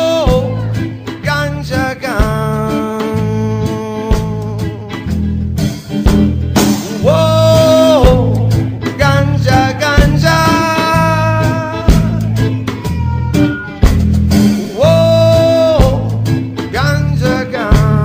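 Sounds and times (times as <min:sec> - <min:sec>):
reggae music: 0:00.0 - 0:18.0.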